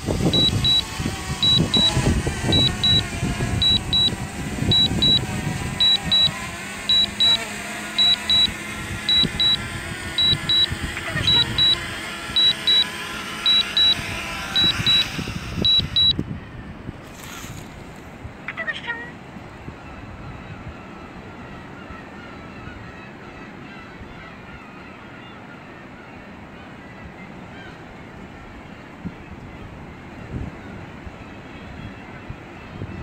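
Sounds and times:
short high beeps: 0.3s - 9.6s, 10.2s - 14.0s, 14.6s - 16.2s.

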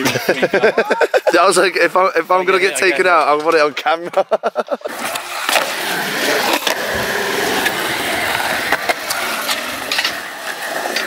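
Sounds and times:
skateboard wheels rolling on concrete: 0.0s - 11.0s
skateboard clacks: 4.9s - 11.0s.

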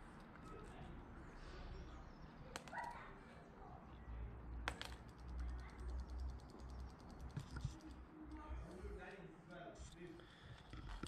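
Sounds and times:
toy fish tail ticking: 4.8s - 8.4s.

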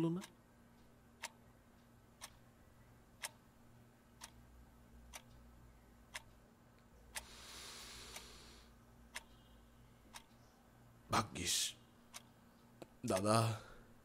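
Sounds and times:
clock ticking: 0.0s - 3.5s, 4.1s - 7.4s, 8.0s - 8.4s, 9.0s - 10.4s, 12.1s - 13.8s.

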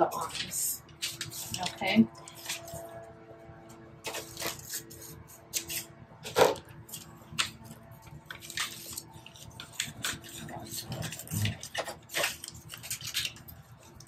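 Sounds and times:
paper rustling and crinkling: 0.1s - 3.0s, 4.0s - 14.0s.

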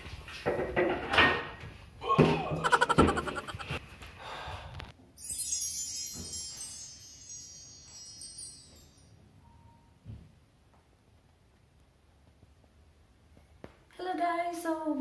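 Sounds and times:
shimmering chime: 5.2s - 9.9s.

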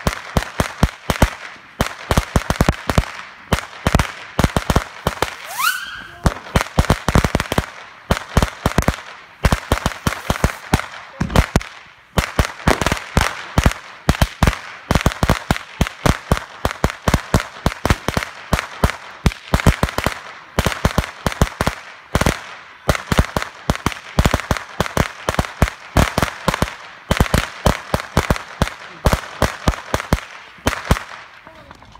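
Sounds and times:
firecrackers going off: 0.0s - 31.9s.

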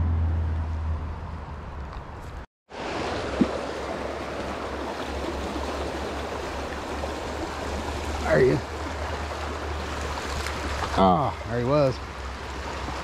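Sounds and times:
flowing river water: 2.7s - 13.0s.

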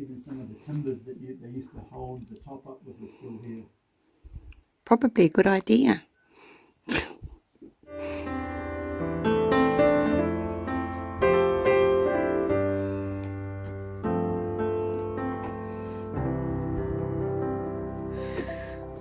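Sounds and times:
piano playing slow chords: 7.9s - 19.0s.

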